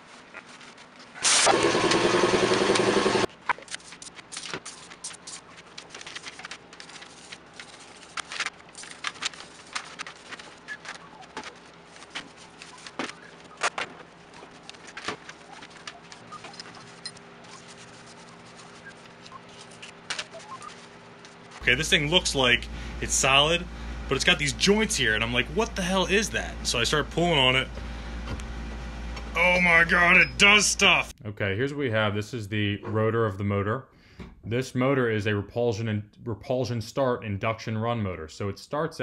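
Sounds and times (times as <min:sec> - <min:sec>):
faint steady hum: 0:05.0 - 0:33.2.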